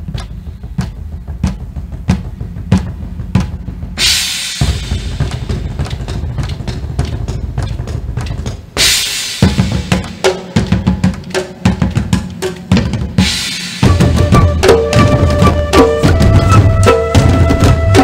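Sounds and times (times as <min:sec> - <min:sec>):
barrel drums drumming: 0:00.0 - 0:18.0
cymbal crash ringing: 0:04.0 - 0:05.7, 0:08.8 - 0:10.3, 0:13.2 - 0:14.0.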